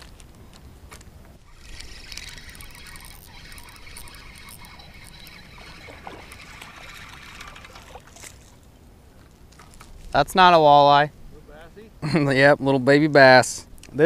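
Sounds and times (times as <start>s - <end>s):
fishing reel gears whirring: 1.4s - 8.3s.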